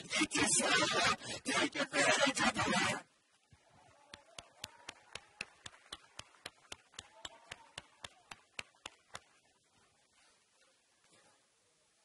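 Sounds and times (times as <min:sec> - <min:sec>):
rhythmic hand clapping: 0:04.1 - 0:09.4.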